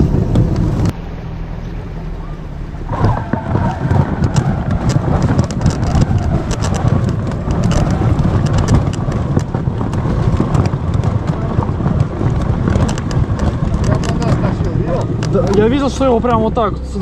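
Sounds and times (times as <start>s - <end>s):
wind buffeting microphone: 0.0s - 1.0s, 2.8s - 17.0s
short crackles: 2.9s - 15.7s.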